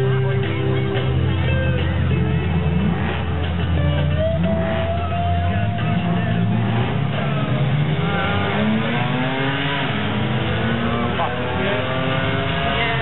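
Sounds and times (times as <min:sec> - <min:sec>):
car engine accelerating hard: 0:00.0 - 0:13.0.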